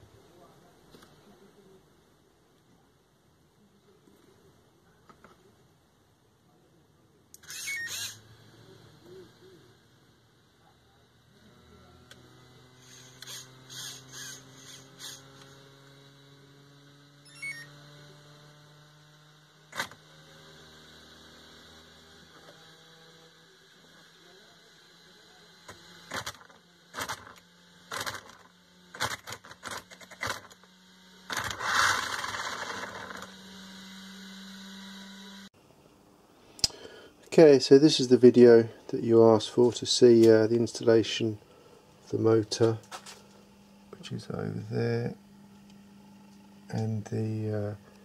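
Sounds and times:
electric motor humming: 7.4s - 10.5s, 11.2s - 35.6s, 37.8s - 48.0s.

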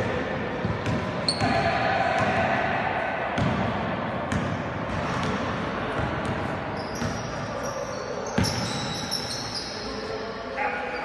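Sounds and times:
basketball bouncing on court floor: 0.6s - 2.4s, 3.4s - 3.7s, 4.3s - 7.2s, 8.4s - 8.8s
sneaker soles squeaking: 1.2s - 1.6s, 6.8s - 10.1s.

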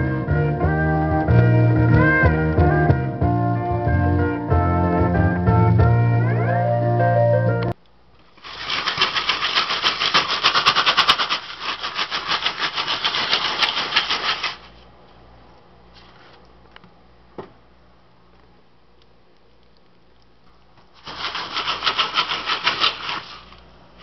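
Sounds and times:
popcorn popping in a pan: 8.2s - 14.6s.

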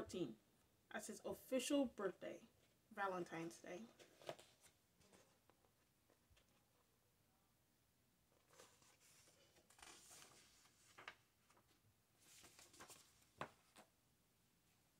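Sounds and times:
paper rustling: 3.9s - 6.9s, 8.4s - 13.9s.

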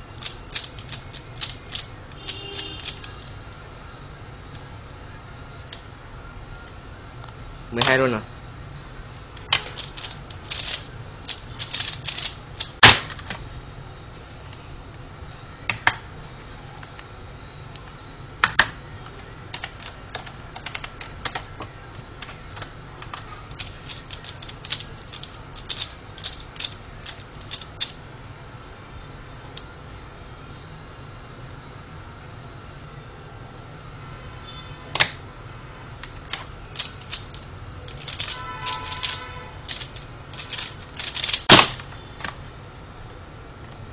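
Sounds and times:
plastic puzzle clicking: 0.2s - 3.4s, 9.4s - 13.4s, 19.5s - 28.0s, 36.0s - 42.4s.

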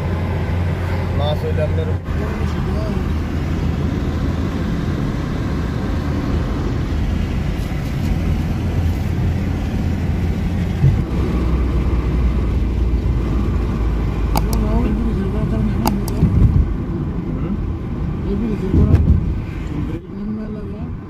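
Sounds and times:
car engine and tyre rumble: 0.0s - 21.0s
car bump: 10.7s - 11.1s.

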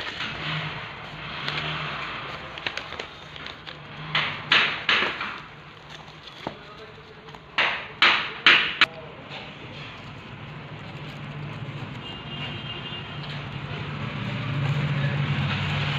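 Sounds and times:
packaging rustling and crinkling: 0.0s - 4.0s, 5.1s - 7.6s.

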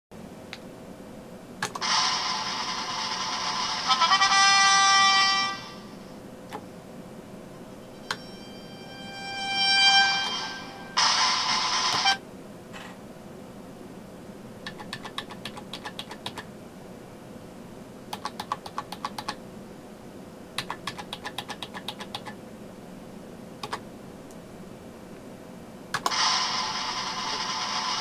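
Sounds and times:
loud sustained sound: 7.8s - 12.2s, 26.1s - 28.0s
keypad keys clicking: 14.6s - 16.5s, 18.1s - 19.4s, 20.6s - 22.4s.

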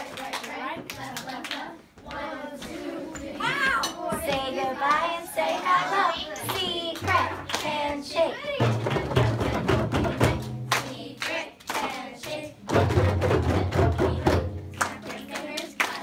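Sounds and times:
hands clapping: 0.0s - 2.2s, 10.2s - 12.4s, 14.7s - 16.0s
children chanting: 0.0s - 12.7s
hand drums: 8.6s - 10.8s, 12.6s - 15.1s.

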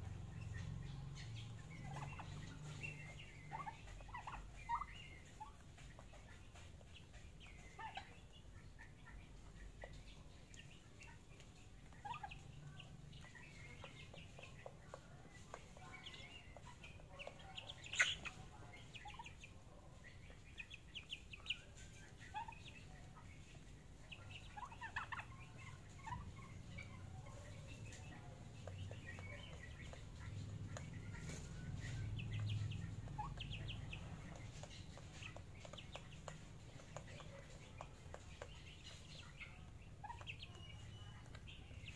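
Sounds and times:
chicks peeping and chirping: 0.0s - 41.9s.

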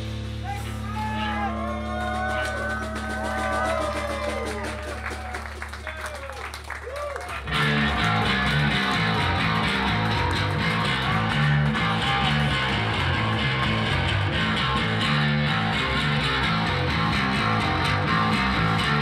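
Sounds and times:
bass line: 0.0s - 19.0s
live band playing guitar-led song: 7.4s - 19.0s.

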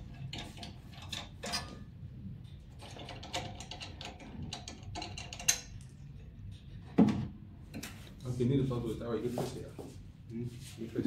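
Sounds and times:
small metallic clicks and scrapes: 0.0s - 6.7s.

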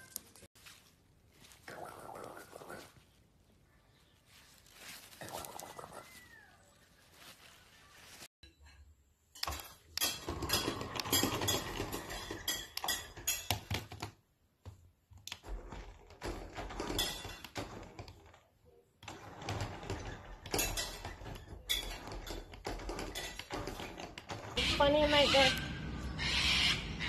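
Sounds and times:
toy car rattling on wooden floor: 9.6s - 14.2s, 15.4s - 18.4s, 19.0s - 24.6s.

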